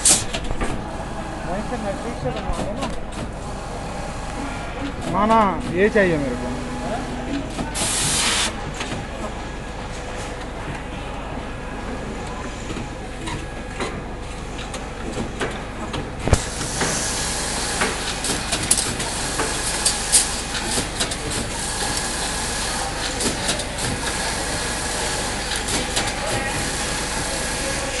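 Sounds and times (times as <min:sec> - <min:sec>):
machine hum and hiss: 0:00.0 - 0:28.0
sharp mechanical clicks and clacks: 0:14.6 - 0:22.1.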